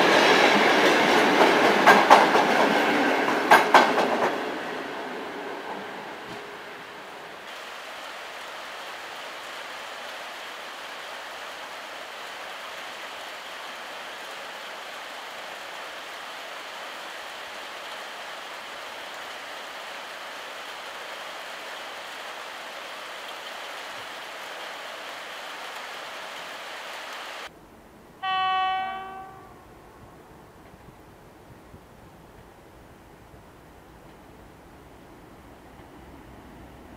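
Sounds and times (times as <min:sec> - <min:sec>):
freight train rolling past: 0:00.0 - 0:36.9
locomotive horn blast: 0:28.2 - 0:30.3.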